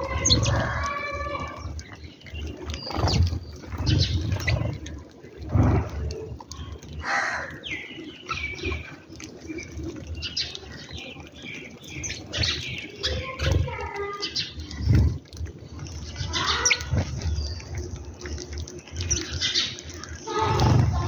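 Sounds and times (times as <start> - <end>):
wings fluttering: 0.0 - 7.5, 12.1 - 21.0
sparrows chirping: 0.0 - 21.0.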